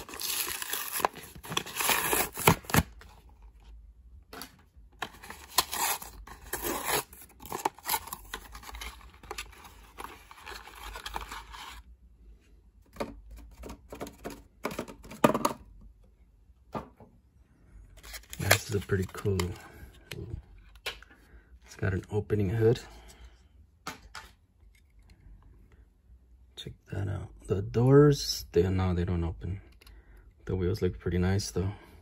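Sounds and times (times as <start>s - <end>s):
cardboard tearing and scraping: 0.0s - 3.0s, 5.1s - 11.8s.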